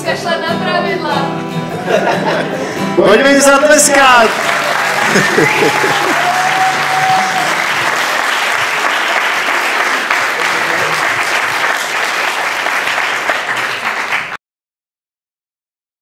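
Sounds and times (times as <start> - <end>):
audience applauding: 3.7 - 14.4.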